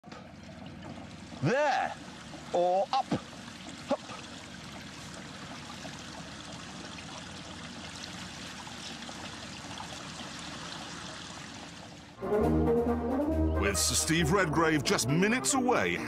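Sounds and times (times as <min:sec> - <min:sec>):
running water rushing: 0:00.1 - 0:12.2.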